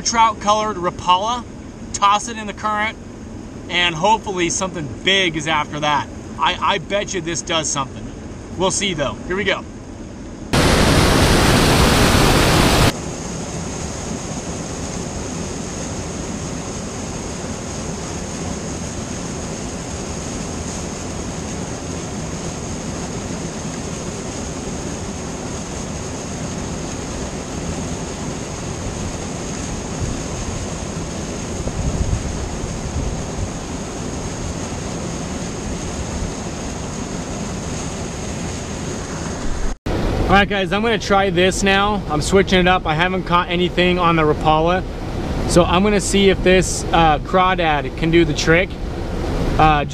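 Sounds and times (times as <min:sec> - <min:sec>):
white water rushing: 0:10.5 - 0:49.9.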